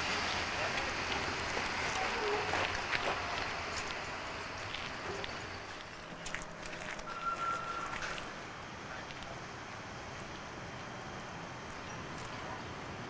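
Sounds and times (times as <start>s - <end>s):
electric locomotives rumbling: 0.0s - 13.0s
high-pitched squeal: 6.8s - 8.4s.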